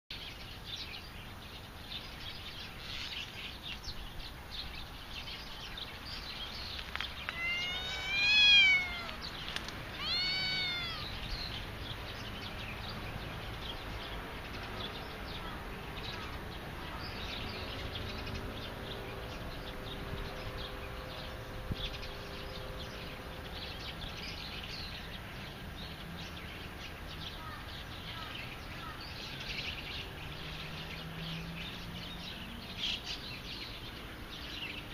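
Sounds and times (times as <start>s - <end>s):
cat meowing: 7.2s - 11.2s.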